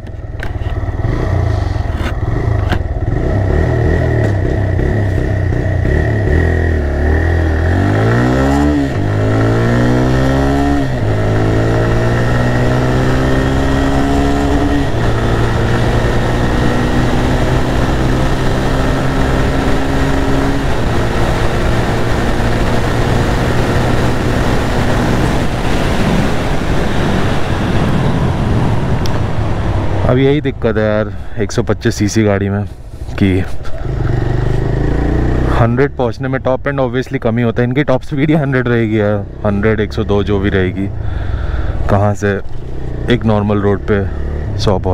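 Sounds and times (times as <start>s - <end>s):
motorcycle engine accelerating: 0.0s - 31.0s, 33.0s - 36.7s, 38.1s - 44.9s
wind rush: 7.2s - 30.6s.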